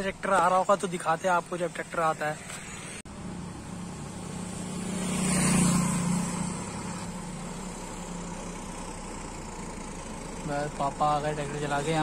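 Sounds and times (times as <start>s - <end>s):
vehicle driving past: 2.8s - 10.4s.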